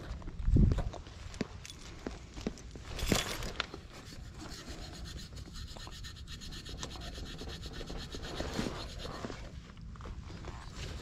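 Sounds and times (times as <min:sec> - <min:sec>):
hands rubbing wiring: 0:03.9 - 0:09.5.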